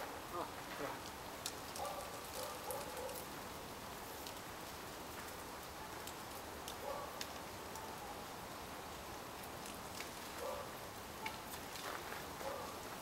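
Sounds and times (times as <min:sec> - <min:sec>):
outdoor background hiss: 0:00.0 - 0:13.0.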